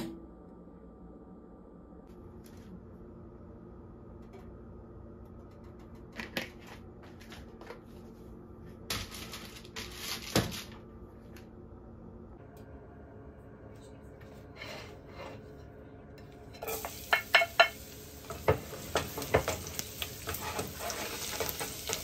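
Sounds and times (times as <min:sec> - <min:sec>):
low kitchen hum: 0:00.0 - 0:22.0.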